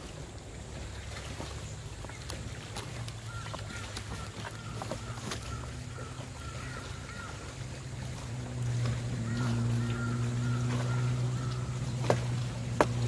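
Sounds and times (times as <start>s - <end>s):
electric boat motor humming: 0.0s - 13.0s.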